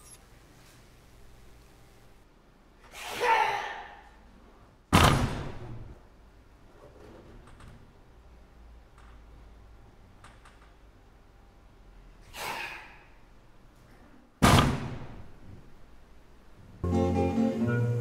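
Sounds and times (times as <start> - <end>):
slam on wooden stage: 4.9 - 5.9, 14.4 - 15.4.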